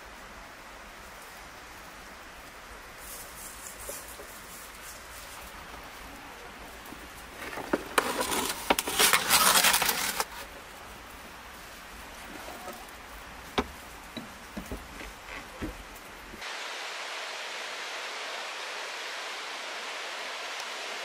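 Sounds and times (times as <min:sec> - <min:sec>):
metal tray scraping oven floor: 0:07.4 - 0:10.4
wooden knocks: 0:13.5 - 0:15.9.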